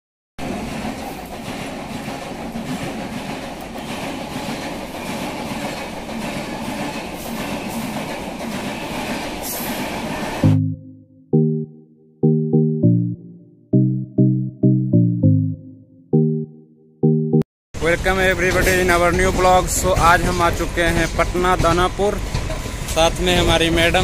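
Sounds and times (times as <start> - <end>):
train wheels on rails: 0.4 - 10.4, 17.8 - 24.0
wheels clacking over rail joints: 0.4 - 10.4, 17.9 - 24.0.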